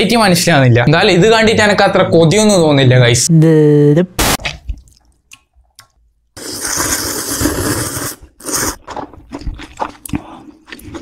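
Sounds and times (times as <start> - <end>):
wet mouth clicks: 4.7 - 10.8
person slurping noodles: 6.4 - 11.0
soft chewing: 8.4 - 11.0.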